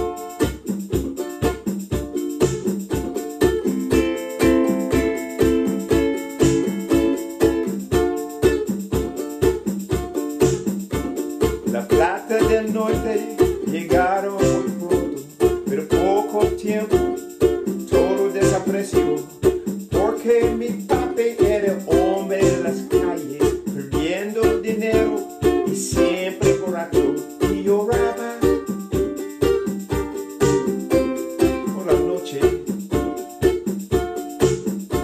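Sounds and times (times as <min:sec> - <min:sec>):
ukulele strumming: 0:00.0 - 0:35.0
man singing: 0:11.7 - 0:17.2, 0:17.8 - 0:28.7, 0:31.2 - 0:32.7.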